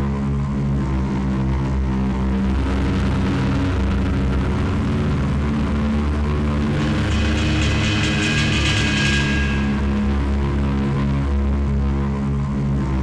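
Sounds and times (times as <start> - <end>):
electronic music droning: 6.5 - 10.5
rapidly pulsing high texture: 6.6 - 10.4.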